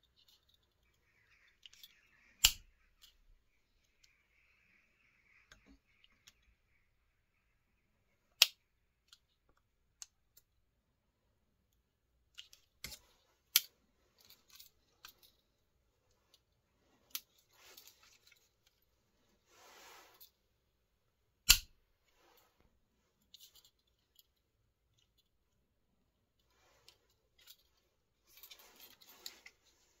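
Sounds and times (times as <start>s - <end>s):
scraping handling noise: 12.4s - 20.4s, 26.4s - 30.0s
pocket knife tools snapping: 21.5s - 21.7s.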